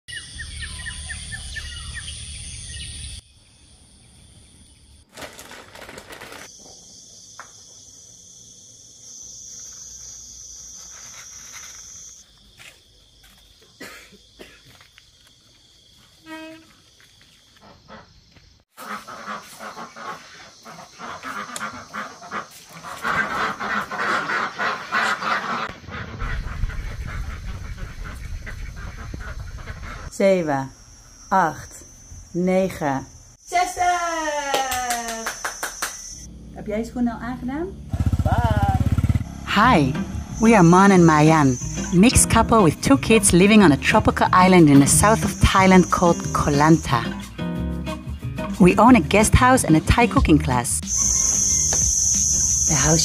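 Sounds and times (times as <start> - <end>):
ducks quacking: 18.7 - 30.1
high-pitched drone: 39.4 - 47.2, 50.3 - 53.0.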